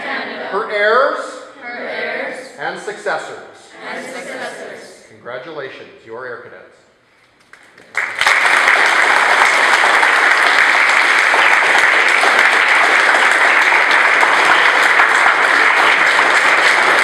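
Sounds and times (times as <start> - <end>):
audience applauding: 7.5 - 17.0.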